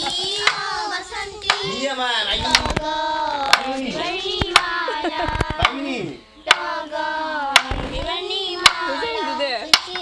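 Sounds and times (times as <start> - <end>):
child singing: 0.0 - 10.0
hand claps: 6.5 - 6.7.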